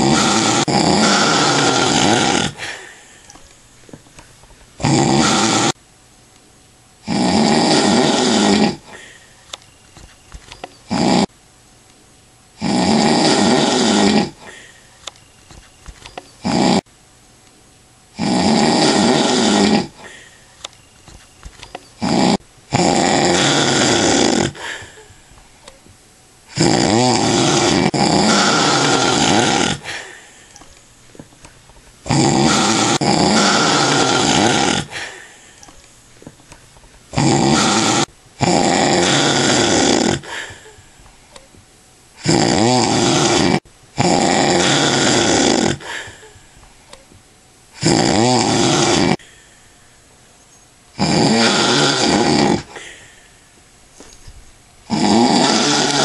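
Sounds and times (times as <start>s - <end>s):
man snoring: 0.0s - 3.0s, 4.8s - 5.8s, 7.0s - 9.1s, 10.9s - 11.3s, 12.6s - 14.6s, 16.4s - 16.9s, 18.2s - 20.3s, 22.0s - 25.1s, 26.5s - 30.3s, 32.1s - 35.6s, 37.1s - 40.8s, 42.2s - 46.4s, 47.8s - 49.3s, 51.0s - 53.0s, 54.9s - 56.0s
quiet breathing: 0.0s - 3.6s, 8.8s - 9.8s, 14.2s - 15.3s, 19.3s - 21.3s, 24.0s - 25.8s, 28.3s - 31.6s, 32.4s - 36.4s, 40.1s - 41.4s, 45.7s - 47.0s, 49.1s - 50.6s, 52.6s - 54.4s
quiet breath: 8.8s - 9.5s, 14.4s - 15.1s, 20.0s - 20.7s, 24.5s - 25.7s, 40.2s - 41.3s, 45.8s - 46.7s, 49.2s - 50.1s, 52.7s - 54.2s.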